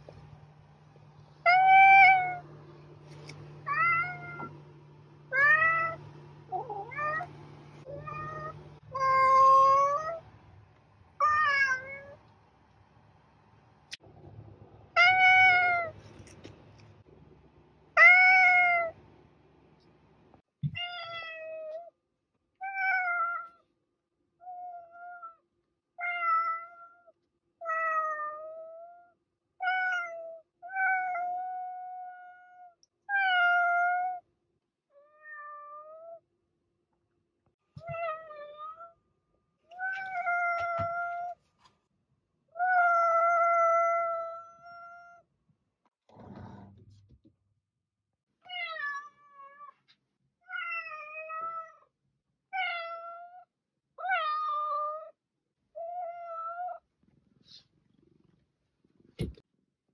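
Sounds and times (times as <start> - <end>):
cats meowing: 7.9 - 10.2, 11.2 - 12.2.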